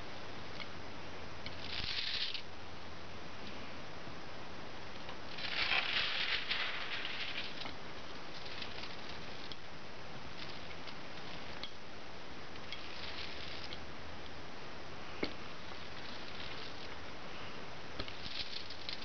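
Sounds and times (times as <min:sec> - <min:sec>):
small crackles and clicks: 0:05.0 - 0:09.7, 0:12.5 - 0:14.4, 0:15.2 - 0:17.0, 0:18.0 - 0:19.0
loud rustle: 0:05.3 - 0:07.7.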